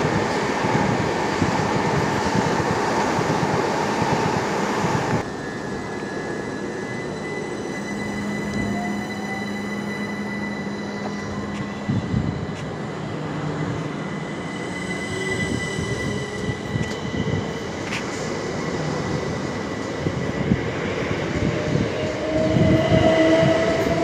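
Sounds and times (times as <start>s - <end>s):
train traction motors whining: 5.2s - 14.0s.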